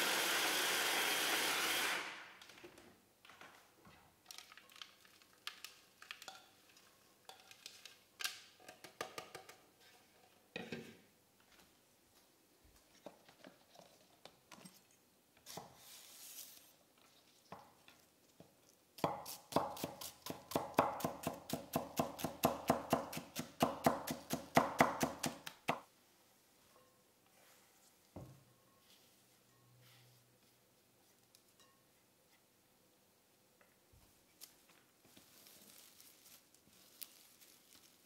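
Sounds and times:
knife chopping on wooden board: 19.0s - 25.5s.

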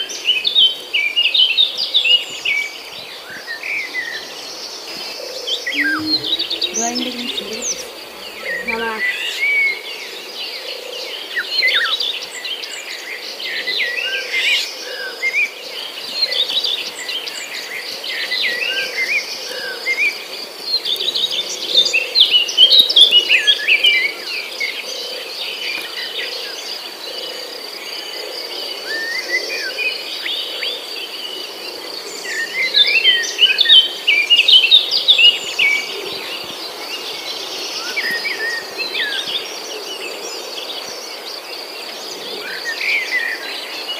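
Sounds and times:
small birds chirping: 0.3s - 9.8s
high insect trill: 5.7s - 9.6s.

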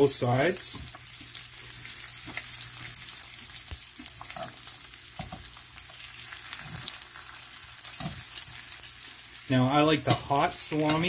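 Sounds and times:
pepperoni sizzling in a frying pan: 0.0s - 11.0s
metal tongs clicking against pan: 10.0s - 11.0s.

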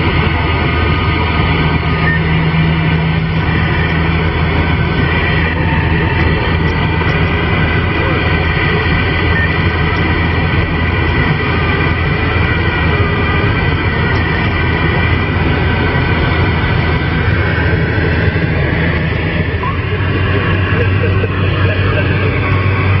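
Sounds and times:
lorry engine drone: 0.0s - 23.0s
road noise: 0.0s - 23.0s.

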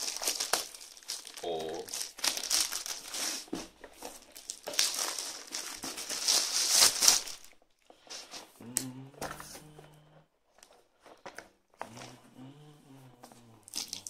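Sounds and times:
plastic bag crinkling: 0.0s - 8.4s, 13.6s - 14.0s.

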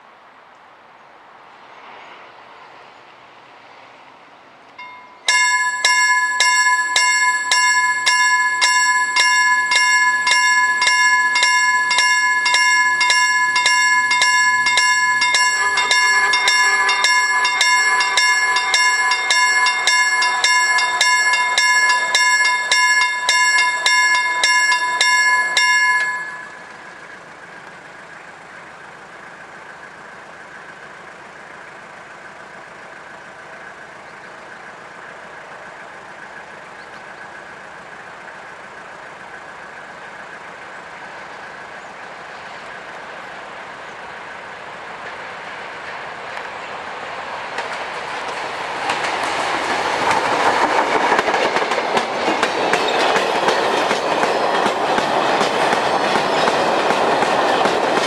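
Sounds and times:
diesel freight train: 1.3s - 58.0s
level crossing warning bell: 4.8s - 27.3s, 49.4s - 58.0s.

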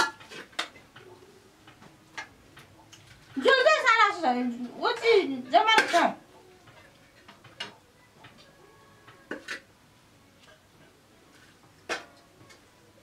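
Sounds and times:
metal ladle clinking on plates: 0.0s - 1.0s, 4.9s - 6.2s.

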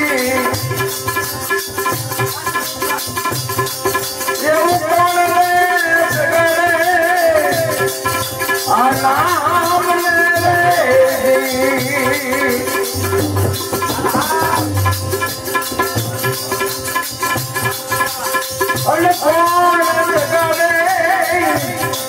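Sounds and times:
rattling hand percussion: 0.0s - 22.0s
person singing: 8.7s - 14.9s.

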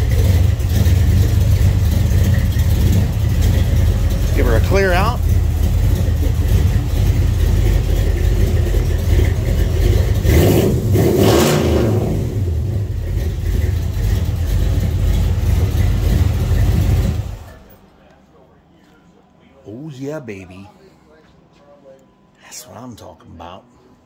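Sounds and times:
engine revving: 0.0s - 17.7s
car engine running: 0.0s - 17.9s.

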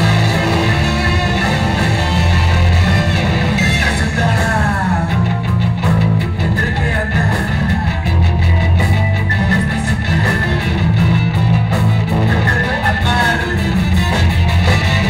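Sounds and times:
drum beat: 0.0s - 5.3s
electric guitars: 0.0s - 15.0s
melodic guitar line: 0.0s - 15.0s.

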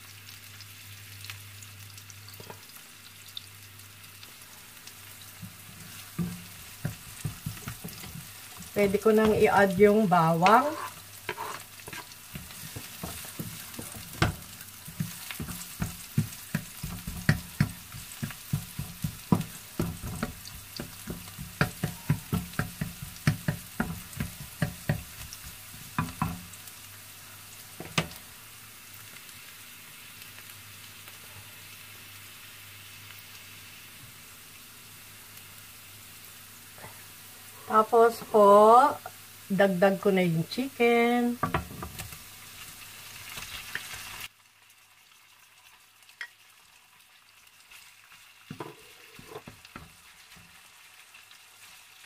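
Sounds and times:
onions sizzling in oil: 0.0s - 52.0s
wooden spatula knocking and scraping pan: 5.4s - 26.6s, 27.8s - 28.2s, 41.2s - 42.2s, 48.5s - 49.9s.

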